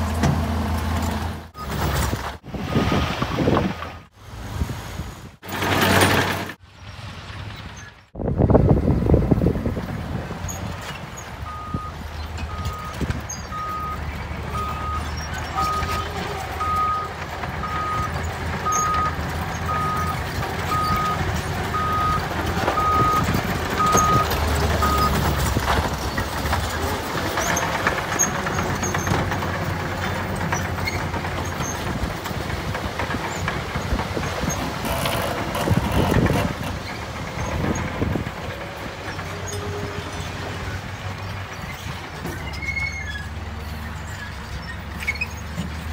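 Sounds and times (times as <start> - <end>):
diesel truck engine running: 0.0 - 4.7, 8.2 - 45.9
reversing alarm beeping: 11.4 - 16.0, 16.6 - 21.2, 21.8 - 22.2, 22.8 - 25.2.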